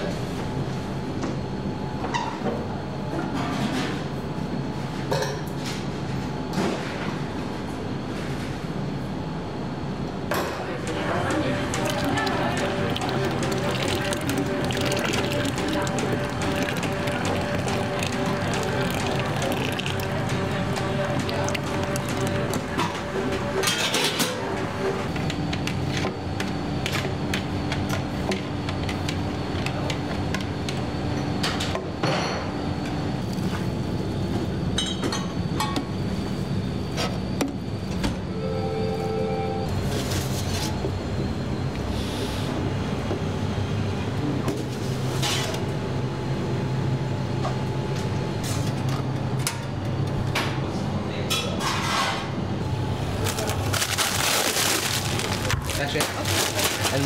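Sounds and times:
steady low hum: 6.0 - 29.6.

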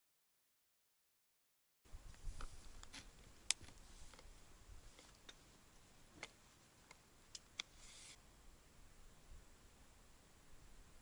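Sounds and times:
brief rustle: 7.4 - 8.2.

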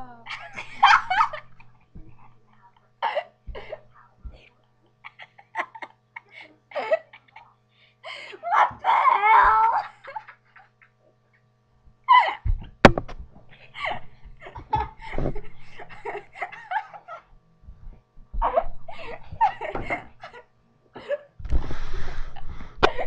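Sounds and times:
girls laughing: 0.2 - 2.4, 3.0 - 3.9, 5.0 - 7.6, 8.2 - 11.0, 12.1 - 12.6, 13.5 - 17.3, 18.4 - 21.2.

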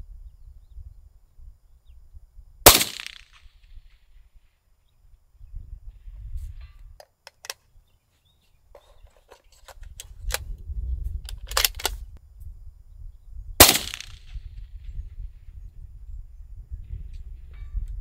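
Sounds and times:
suppressed gunshot: 2.6 - 3.5, 13.6 - 14.4
rifle bolt metallic clicks: 11.3 - 12.0.

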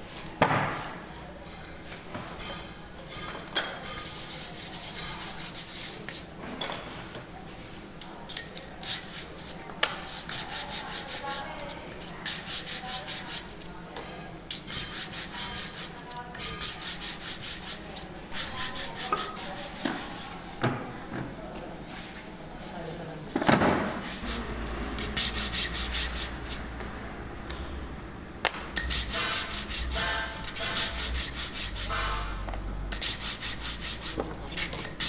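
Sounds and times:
metal scraping on abrasive sheet: 28.9 - 32.4.

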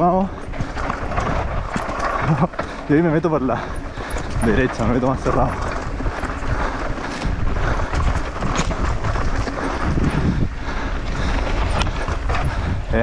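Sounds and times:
bike rattling and clacking: 0.0 - 13.0
tyres running through dirt: 0.0 - 13.0
wind rushing over microphone: 0.0 - 13.0.

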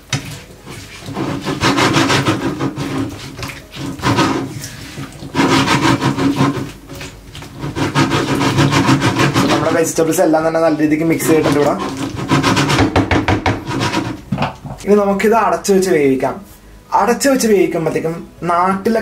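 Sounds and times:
spatula scraping in a pan: 0.0 - 10.0, 11.1 - 14.3.

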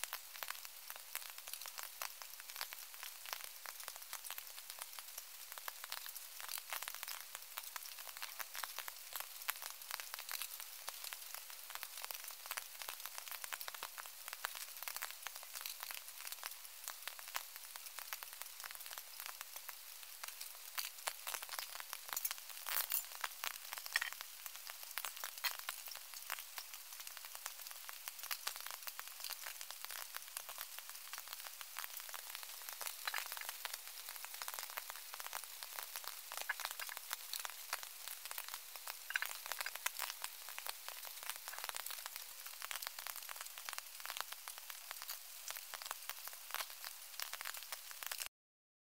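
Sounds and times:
rain pattering on foliage: 0.0 - 48.3.

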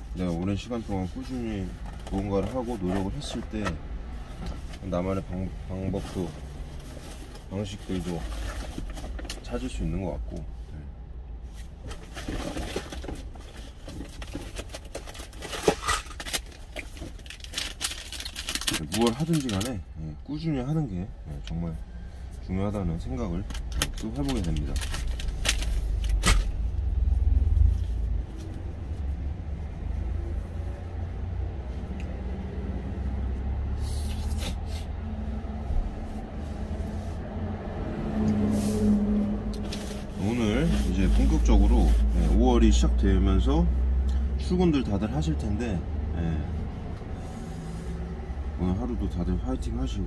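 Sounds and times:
paper tissue rustling: 39.7 - 42.4.

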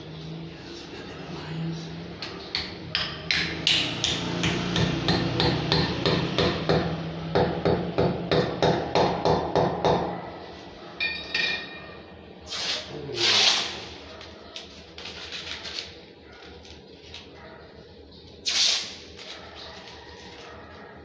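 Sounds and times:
short metal clink: 11.0 - 11.9.

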